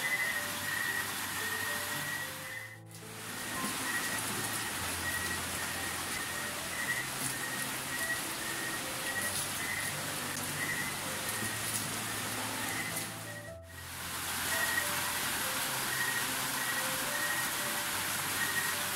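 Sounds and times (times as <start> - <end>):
water splashing onto floor: 9.1 - 13.2.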